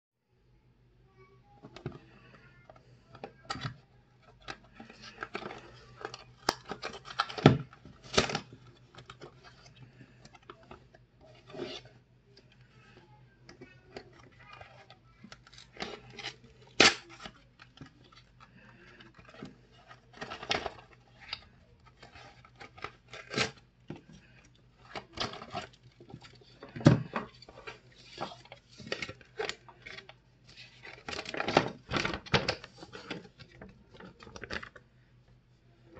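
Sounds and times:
packaging rustling and tearing: 0:24.2 - 0:34.8.

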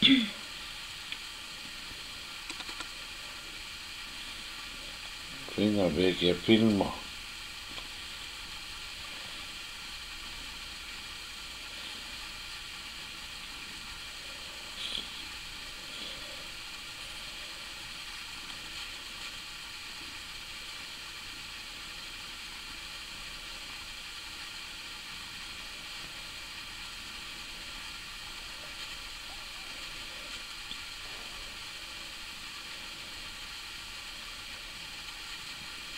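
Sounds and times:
recording hiss: 0:00.0 - 0:35.9.

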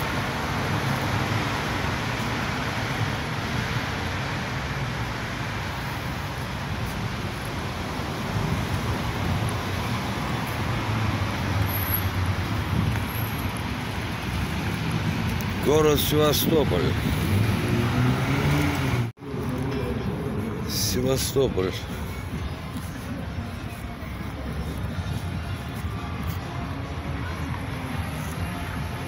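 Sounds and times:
cars passing on a street: 0:00.0 - 0:29.0.

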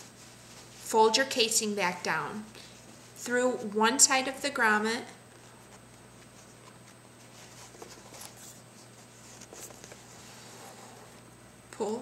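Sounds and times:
canvas and cord rustling: 0:00.0 - 0:03.3
low steady hum: 0:00.0 - 0:12.0.

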